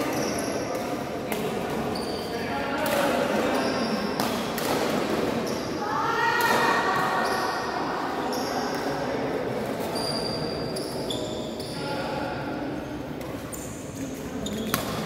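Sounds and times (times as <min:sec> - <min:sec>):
sneakers squeaking on court floor: 0:00.0 - 0:02.5, 0:03.2 - 0:05.8, 0:06.9 - 0:08.9, 0:09.8 - 0:11.9, 0:13.2 - 0:15.0
murmur of background noise: 0:00.0 - 0:15.0.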